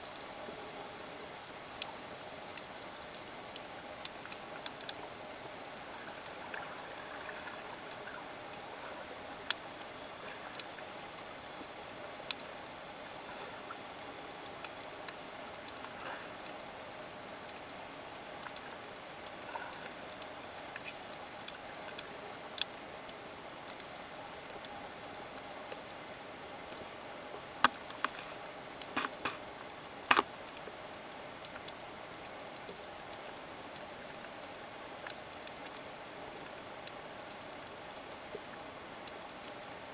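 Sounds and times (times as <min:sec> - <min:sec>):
sharp clicks and crackles: 0:09.4 - 0:16.4, 0:27.6 - 0:31.8.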